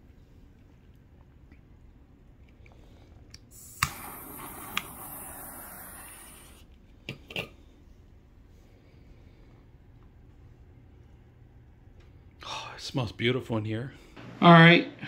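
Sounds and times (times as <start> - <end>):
lighter click: 3.3 - 6.5
torch lighter hissing: 3.4 - 6.7.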